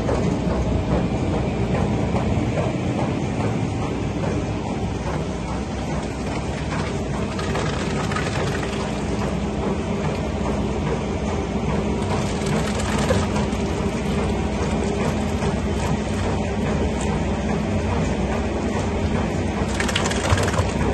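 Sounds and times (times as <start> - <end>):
pump machine humming: 0.0 - 20.9
mash sloshing from hose: 5.2 - 10.6, 11.8 - 20.9.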